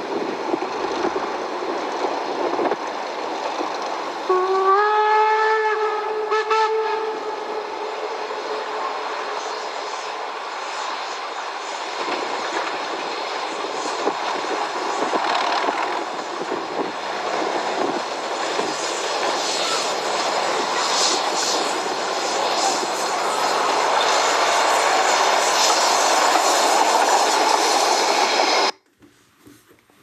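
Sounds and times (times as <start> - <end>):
steam train running on track: 0.0 - 28.8
steam locomotive whistle: 4.3 - 9.5.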